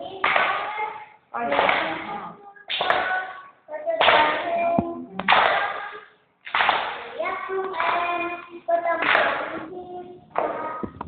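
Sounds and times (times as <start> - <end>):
children singing: 0.0 - 6.2, 6.9 - 11.0
hand clapping: 0.2 - 0.8, 1.5 - 2.1, 2.7 - 3.3, 4.0 - 9.8.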